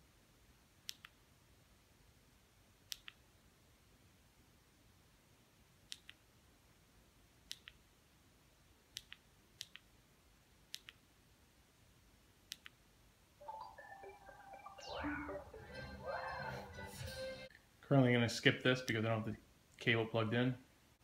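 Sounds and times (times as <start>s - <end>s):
music from television: 13.4s - 17.5s.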